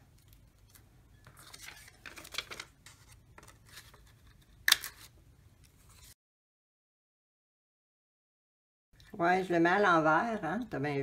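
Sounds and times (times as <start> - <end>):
magazine paper rustling: 0.2 - 5.1.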